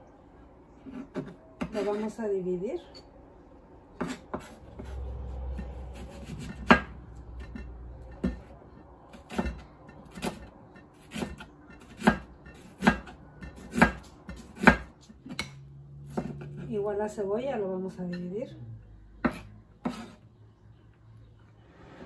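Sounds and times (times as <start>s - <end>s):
knife slicing onion: 4.0s - 7.6s, 9.1s - 15.4s, 16.1s - 16.7s, 19.2s - 20.2s.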